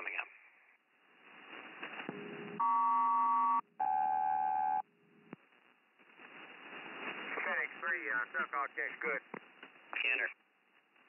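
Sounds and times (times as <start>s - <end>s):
faint receiver static: 5.2s - 11.0s.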